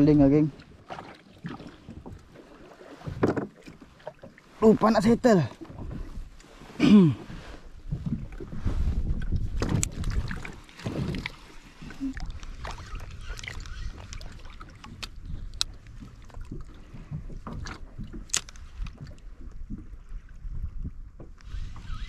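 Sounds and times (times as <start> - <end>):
waves lapping against kayak hull: 0.0 - 22.0
wind buffeting microphone: 7.2 - 22.0.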